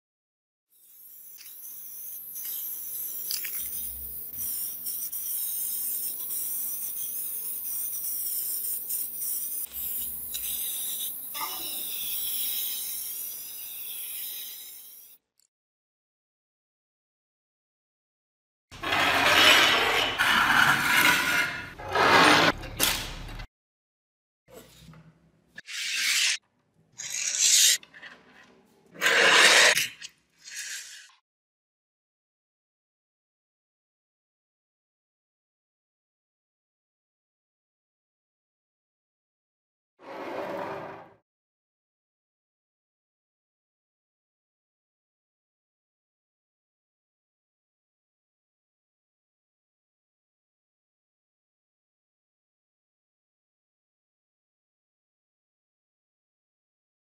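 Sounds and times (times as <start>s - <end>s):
spray can hissing: 0.8s - 15.2s.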